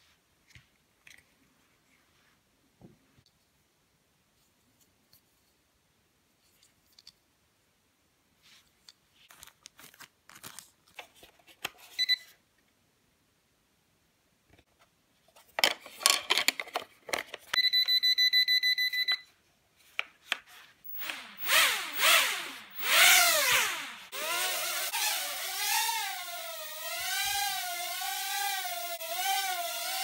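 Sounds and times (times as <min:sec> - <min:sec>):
plastic clicks and rattles: 0:15.4 - 0:17.6
drone motors whining: 0:20.9 - 0:30.0.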